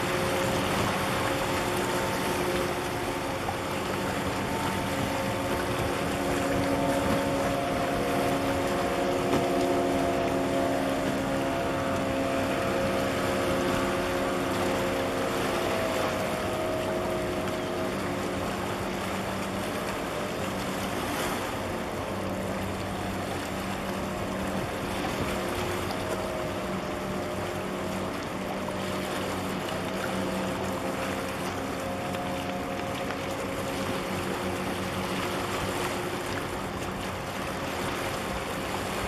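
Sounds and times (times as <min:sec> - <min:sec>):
ship engines droning: 0:00.0 - 0:39.0
wind and water hiss: 0:00.0 - 0:39.0.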